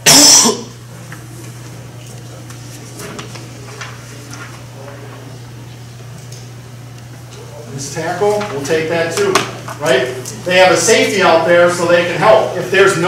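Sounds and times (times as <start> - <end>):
loud burst of noise: 0.0 - 0.8
steady low hum: 0.0 - 13.0.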